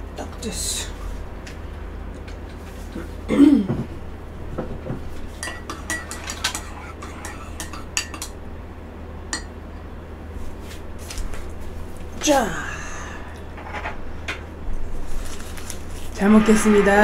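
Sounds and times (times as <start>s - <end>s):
spoon clinking against mug: 5.4s - 8.3s.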